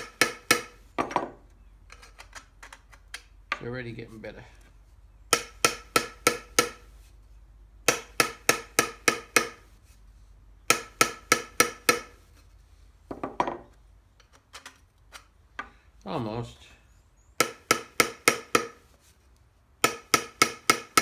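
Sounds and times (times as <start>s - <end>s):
small hammer tapping steel tube: 0.0s - 0.7s, 5.3s - 6.8s, 7.8s - 9.6s, 10.7s - 12.1s, 17.4s - 18.8s, 19.8s - 21.0s.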